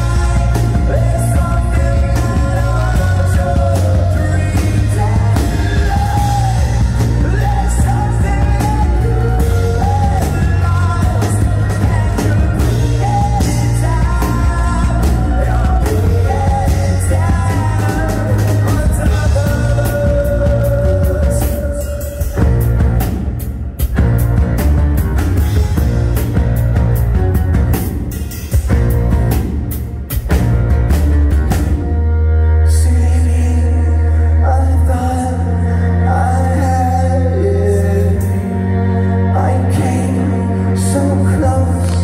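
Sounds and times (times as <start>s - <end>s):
live rock band playing: 0.0s - 42.0s.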